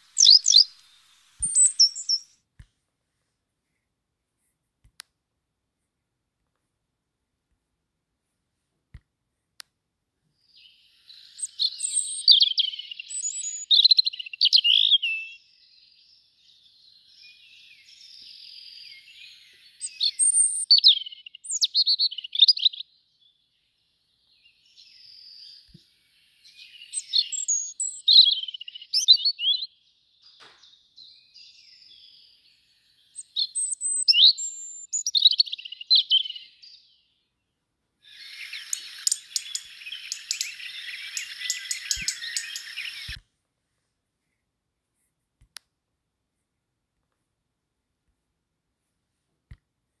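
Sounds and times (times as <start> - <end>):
songbird singing: 0.0 - 2.4, 10.4 - 43.2.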